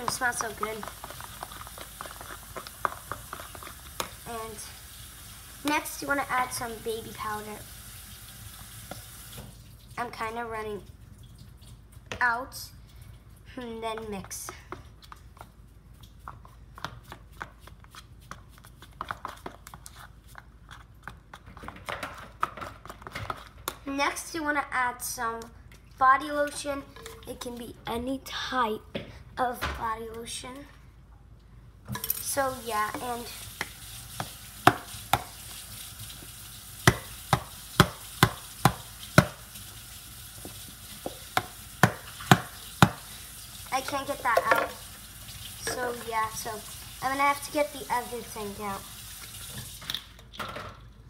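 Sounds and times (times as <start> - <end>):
slime squishing in plastic bowl: 0.0 - 4.6, 13.7 - 24.2.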